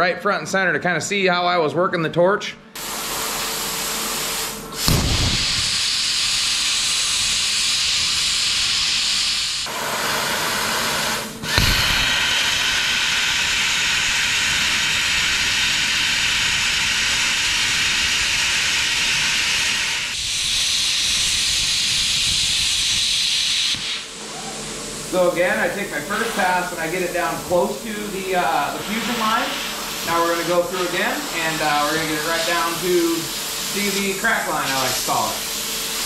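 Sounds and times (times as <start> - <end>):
plasma cutter arc hissing: 2.8 - 36.0
plasma arc restarting pop: 4.8 - 7.5, 11.4 - 13.3.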